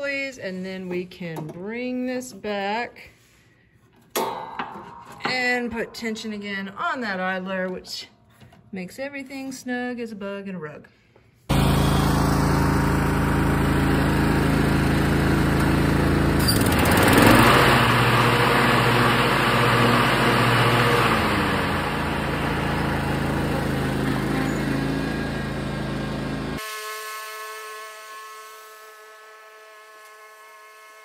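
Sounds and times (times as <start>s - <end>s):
lawn tractor engine driving past: 11.5s - 26.6s.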